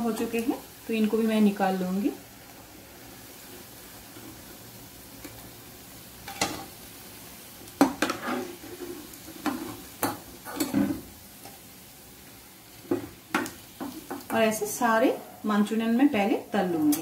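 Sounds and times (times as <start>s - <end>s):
frying oil sizzling: 0.0s - 17.0s
metal spoon scraping a pan: 7.9s - 11.0s.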